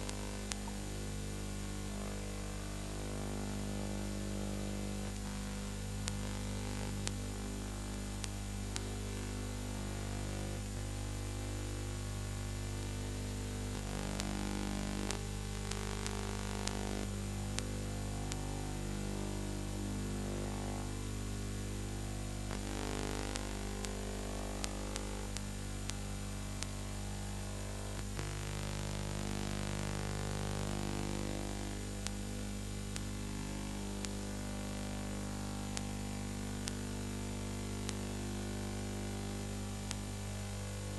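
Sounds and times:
clicks and crackles: 0:00.0 - 0:00.8, 0:04.5 - 0:09.4, 0:13.7 - 0:19.1, 0:22.4 - 0:27.0, 0:27.8 - 0:38.2, 0:39.7 - 0:40.3
electrical mains hum: 0:00.0 - 0:40.9.

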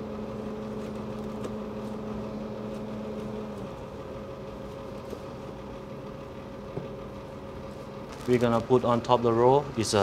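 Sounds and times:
kitchen machinery hum: 0:00.0 - 0:10.0.

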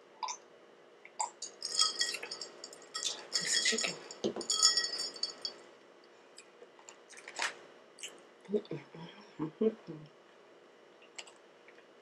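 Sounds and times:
ice clinking in glass: 0:01.3 - 0:05.6.

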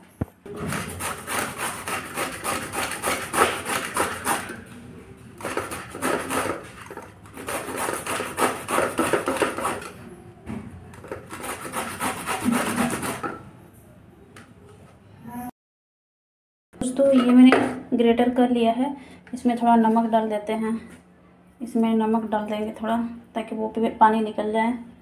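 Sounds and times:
gourd grating on metal grater: 0:00.6 - 0:04.6, 0:05.4 - 0:10.0, 0:11.0 - 0:13.4.

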